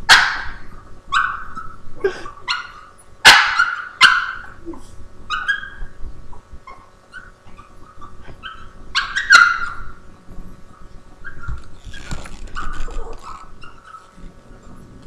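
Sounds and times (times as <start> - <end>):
dog yelp-bark: 0.1 - 4.6, 5.3 - 5.9, 6.7 - 10.0
dog whining and whimpering: 4.4 - 9.9.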